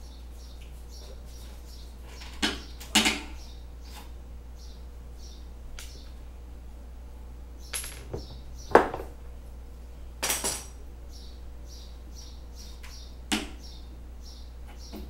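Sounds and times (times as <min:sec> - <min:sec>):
metal tools knocking: 0:07.7 - 0:09.1.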